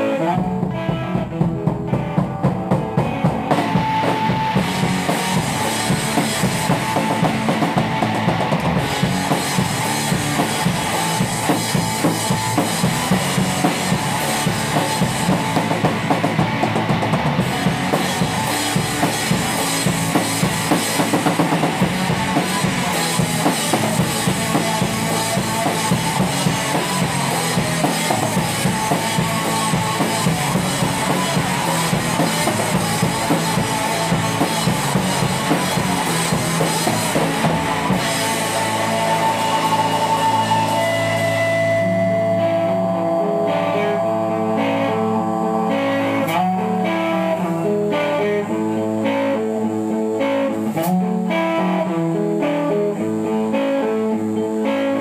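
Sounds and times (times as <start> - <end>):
bass drum and snare beat: 0.0 - 41.3
rock band playing instrumental: 0.0 - 55.0.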